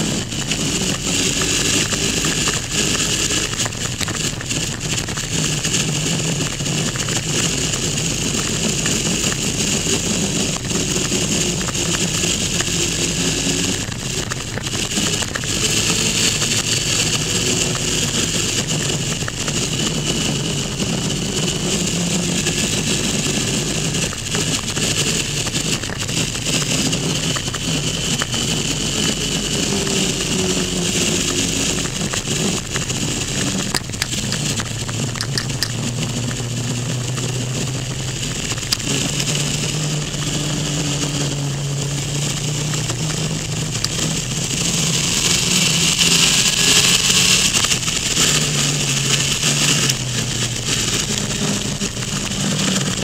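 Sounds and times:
motorcycle engine running: 0.0 - 53.0
wind and road rush: 0.0 - 53.0.

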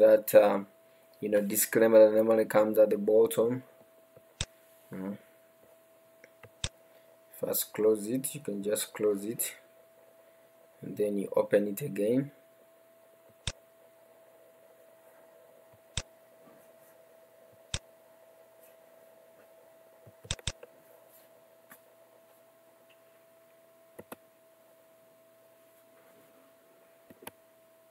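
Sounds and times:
faint electrical hum: 0.0 - 27.9
computer mouse clicking: 20.3 - 20.6.

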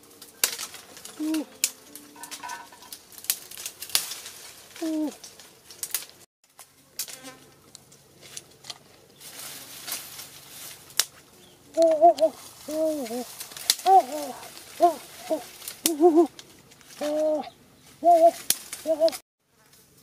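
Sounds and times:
bird calling: 0.0 - 3.6, 4.8 - 5.2, 11.1 - 19.2
twigs snapping and crackling: 0.0 - 17.2, 18.2 - 19.2
scratching in dry soil: 0.0 - 20.0
fly buzzing: 6.8 - 8.5, 9.2 - 19.8.

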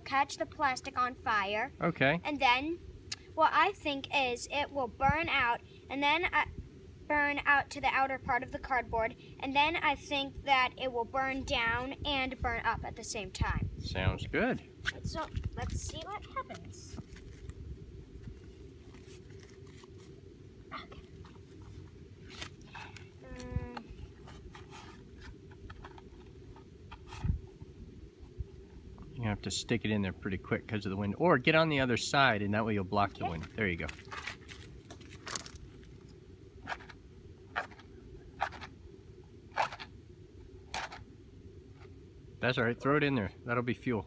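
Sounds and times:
wind rumbling on microphone: 8.1 - 30.7
microphone handling sounds: 14.8 - 29.2.

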